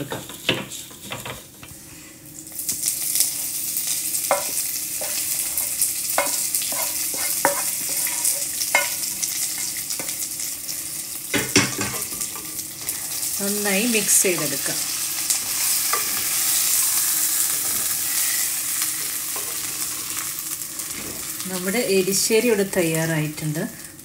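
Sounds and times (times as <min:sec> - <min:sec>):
oil sizzling: 0:00.0 - 0:24.0
spatula scraping pan: 0:04.2 - 0:10.2.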